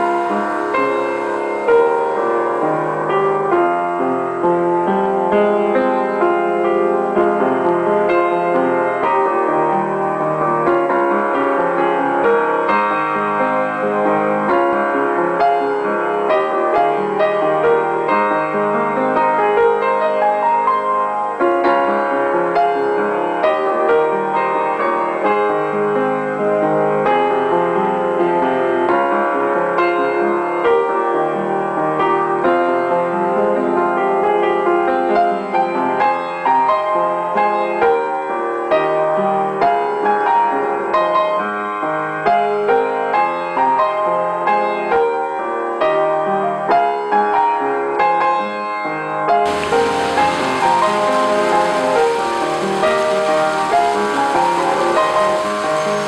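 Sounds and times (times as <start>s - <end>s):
piano music: 0.0s - 13.5s, 49.5s - 56.0s.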